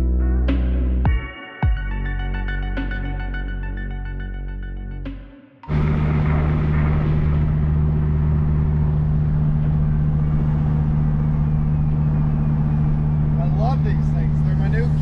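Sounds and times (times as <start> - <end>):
car engine droning: 5.7 - 15.0.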